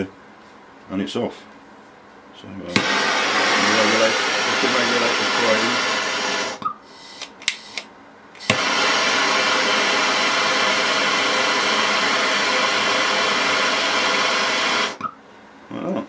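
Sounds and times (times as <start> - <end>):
torch flame hissing: 2.7 - 7.8, 8.4 - 15.0
torch trigger clicks: 2.7 - 9.8.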